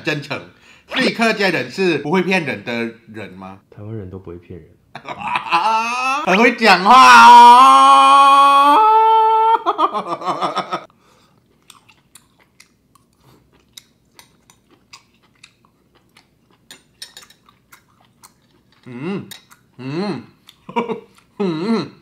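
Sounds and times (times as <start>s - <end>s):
mouth chewing: 11.3s - 21.4s
short vocal sound: 18.9s - 20.3s, 21.4s - 22.0s.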